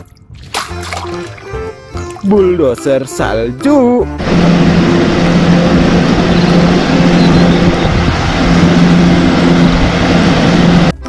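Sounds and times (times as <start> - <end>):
diesel engine running under load: 4.0 - 11.0
plow blade pushing through snow: 4.2 - 11.0.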